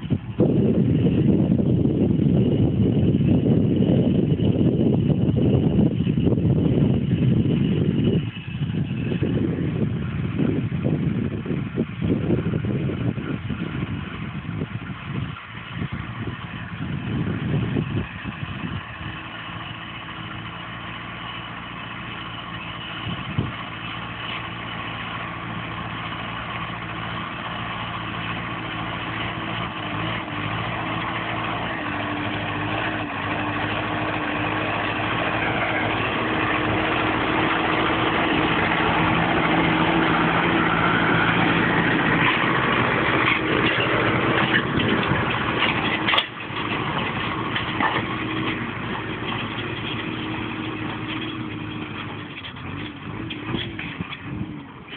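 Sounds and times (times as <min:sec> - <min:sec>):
tractor diesel engine running: 0:00.0 - 0:54.9.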